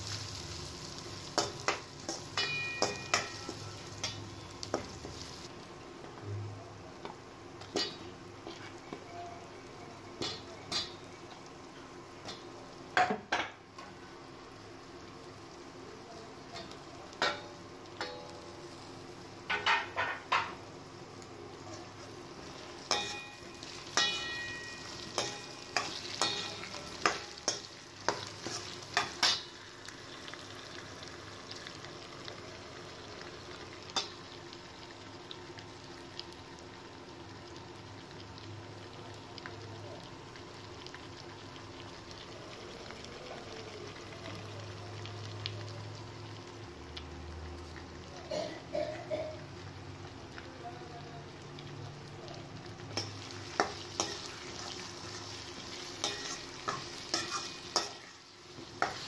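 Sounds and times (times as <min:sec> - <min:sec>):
vegetables sizzling in oil: 0:00.0 - 0:59.0
spoon striking a steel wok: 0:01.4 - 0:04.9, 0:17.2 - 0:18.4, 0:22.9 - 0:29.5.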